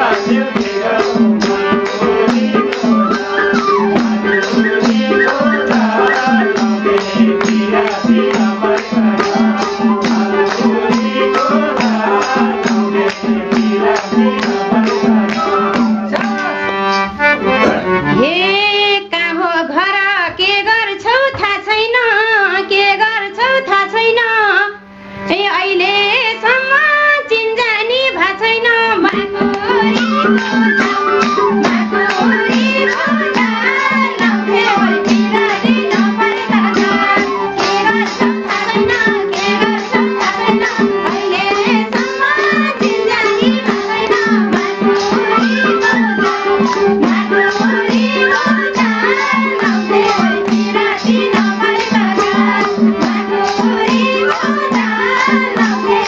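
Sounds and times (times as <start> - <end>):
hand-clapping and percussion: 0.0 - 18.2, 20.2 - 22.1, 28.3 - 56.0
wavering melody line: 1.5 - 18.5, 29.1 - 56.0.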